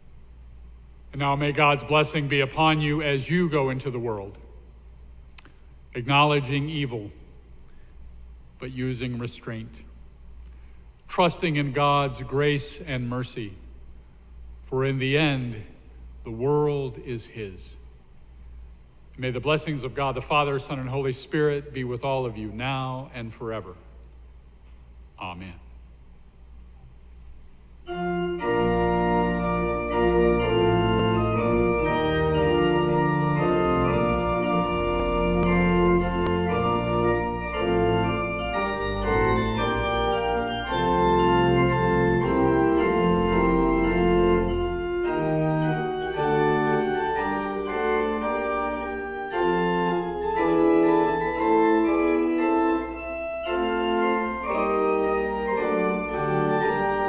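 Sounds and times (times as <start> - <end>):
church pipe organ chords: 0.0 - 4.5, 27.8 - 57.0.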